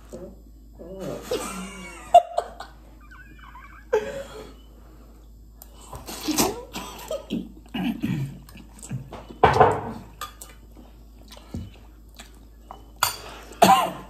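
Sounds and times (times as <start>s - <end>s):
slurping and chewing noodles: 5.6s - 9.1s, 10.2s - 13.6s.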